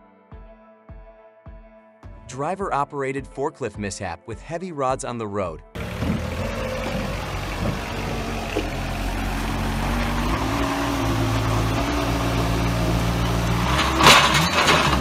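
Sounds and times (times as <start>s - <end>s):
forklift engine under load: 5.8s - 15.0s
loud short clatter: 13.7s - 15.0s.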